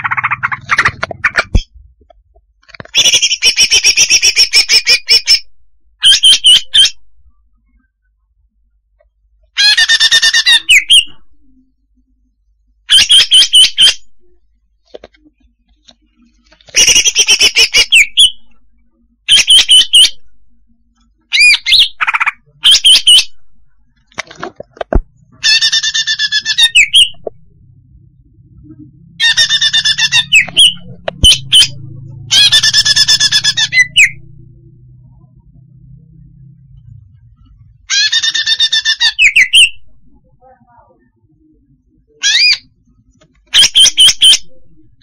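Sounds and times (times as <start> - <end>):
bird chattering high calls: 0.0 - 1.6.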